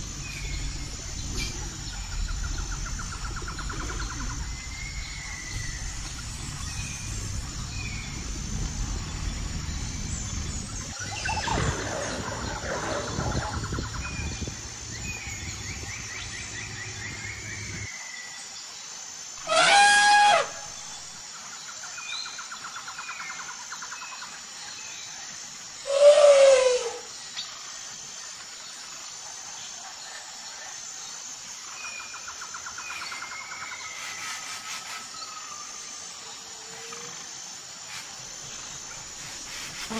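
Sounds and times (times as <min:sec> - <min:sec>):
low background rumble: 0:00.0 - 0:17.9
insect trills: 0:00.0 - 0:39.9
elephant trumpeting: 0:19.4 - 0:20.6.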